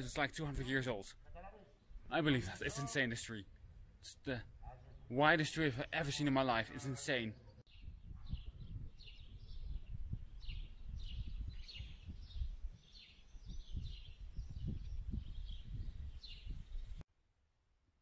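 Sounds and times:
small bird chirping: 0:07.3 - 0:17.0
wind rumbling on microphone: 0:07.7 - 0:17.0.

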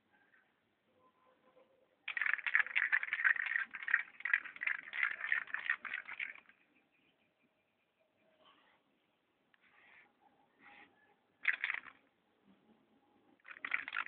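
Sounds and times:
spray can ball rattling: 0:02.1 - 0:06.5, 0:11.4 - 0:12.0, 0:13.4 - 0:14.0.

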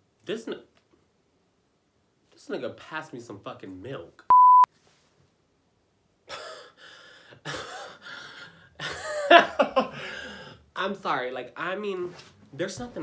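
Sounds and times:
censor bleep: 0:04.3 - 0:04.7.

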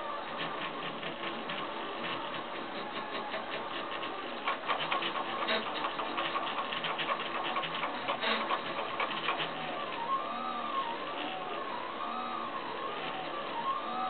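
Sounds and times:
stepper motors whining: 0:00.0 - 0:14.0
rapid ticking: 0:00.2 - 0:10.1.

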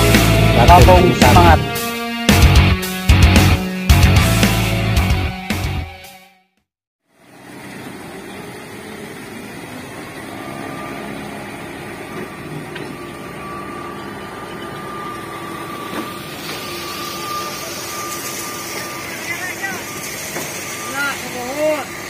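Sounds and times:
high whine: 0:00.0 - 0:04.8
diesel engines running: 0:00.0 - 0:05.3, 0:07.1 - 0:22.0.

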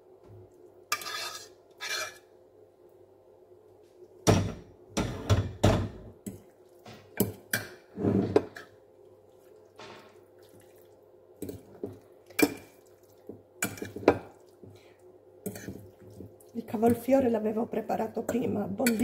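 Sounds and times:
metal spoon scraping ceramic dish: 0:00.9 - 0:02.2.

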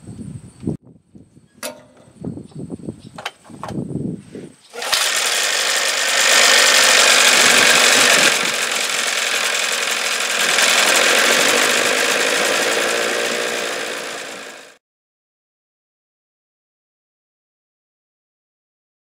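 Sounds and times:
outboard motor running: 0:04.8 - 0:14.8.

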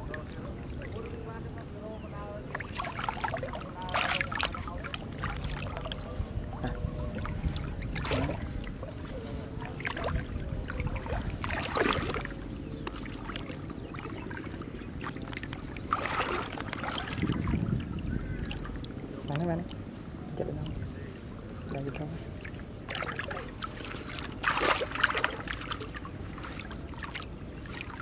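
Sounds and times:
hands splashing in muddy water: 0:09.8 - 0:14.4, 0:15.0 - 0:17.5, 0:22.9 - 0:28.0.

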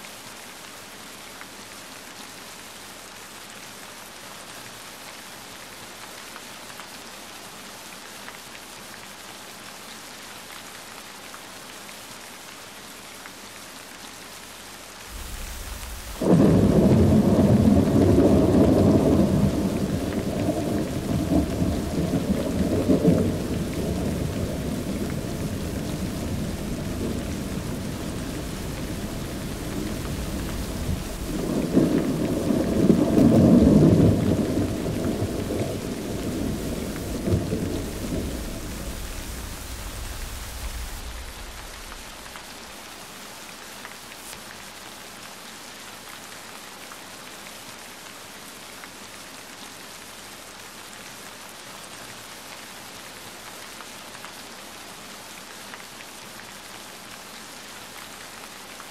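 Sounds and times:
steady rain: 0:00.0 - 0:58.9
thunder rolling: 0:15.1 - 0:42.5.

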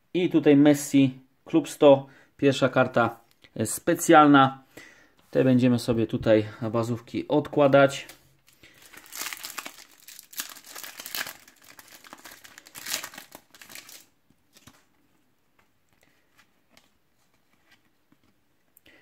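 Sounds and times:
foil wrapper tearing and crinkling: 0:08.6 - 0:14.1.

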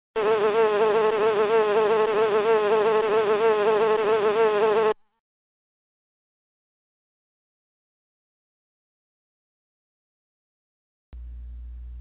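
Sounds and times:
bee buzzing: 0:00.2 - 0:05.0.

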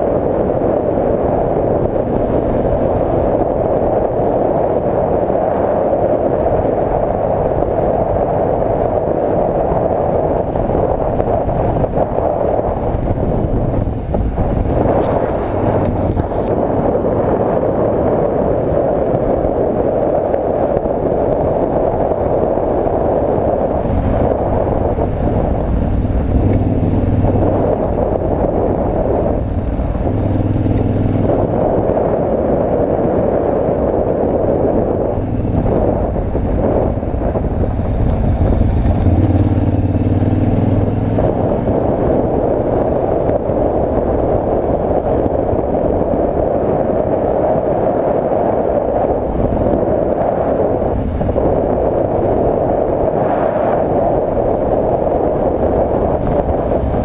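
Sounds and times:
wind rush on microphone: 0:00.0 - 0:57.0
motorcycle engine running: 0:07.2 - 0:18.8, 0:20.8 - 0:47.1.

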